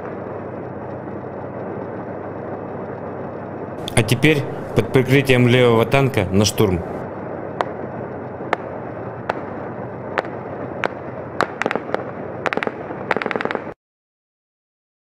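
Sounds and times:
small-arms gunfire: 10.2 - 13.8.

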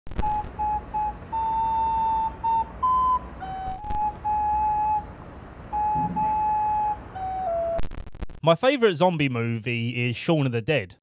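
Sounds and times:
recorder playing slow melody: 0.2 - 7.9.

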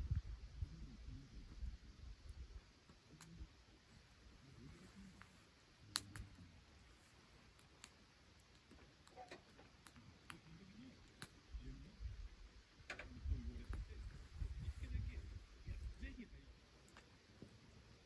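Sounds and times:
campfire crackling and popping: 5.7 - 11.8.

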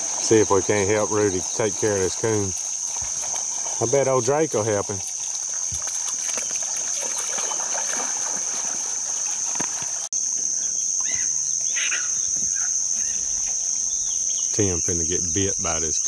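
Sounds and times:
splashing: 0.0 - 10.1
insects droning: 0.0 - 16.0.

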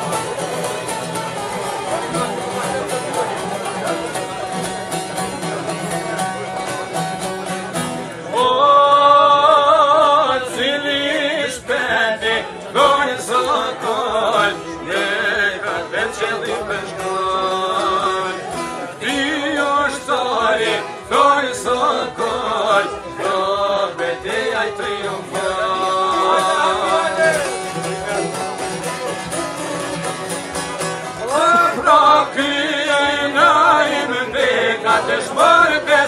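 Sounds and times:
lutes plucked in folk tune: 0.0 - 36.0
men singing with vibrato: 8.3 - 28.6, 31.1 - 36.0.

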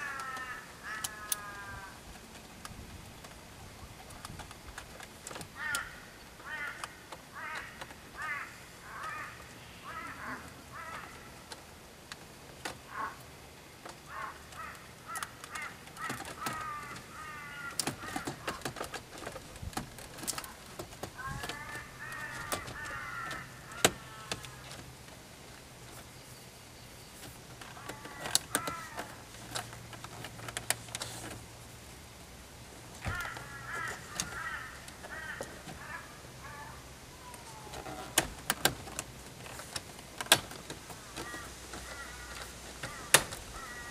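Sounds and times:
crows cawing: 0.0 - 2.1, 5.5 - 11.5, 12.8 - 13.3, 14.0 - 18.8, 20.3 - 24.8, 27.7 - 29.3, 33.0 - 38.1, 40.9 - 43.9.

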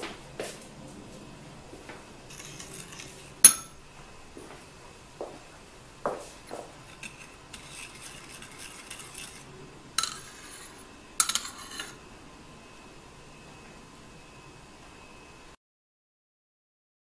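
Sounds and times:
spoon clinking against bowl: 2.3 - 3.8, 10.0 - 12.0
spoon stirring in a bowl: 2.3 - 3.8, 6.7 - 12.0.

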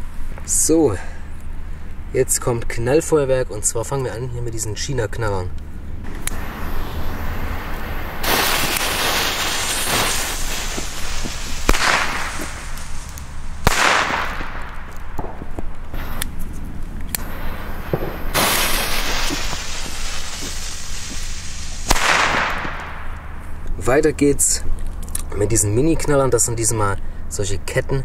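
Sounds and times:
steady hiss: 0.0 - 28.0
firecracker bangs: 6.0 - 16.3, 17.2 - 23.4.

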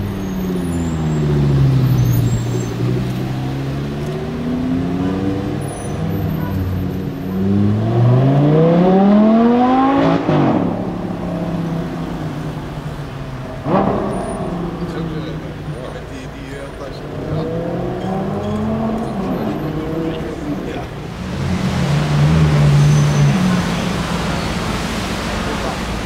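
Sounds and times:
sports car engine revving: 0.0 - 26.0.

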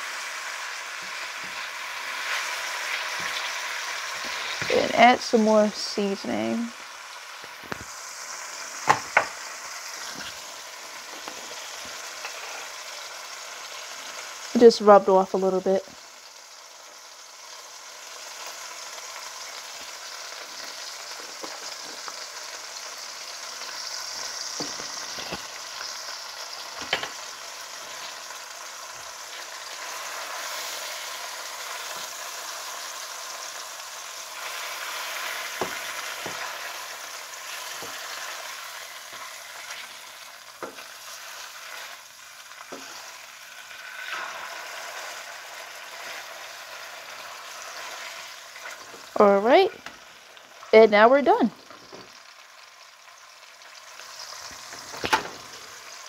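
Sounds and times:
fish sizzling in a frying pan: 0.0 - 56.0
spatula clicking and scraping pan: 11.0 - 12.8, 34.4 - 41.9, 42.6 - 43.1.

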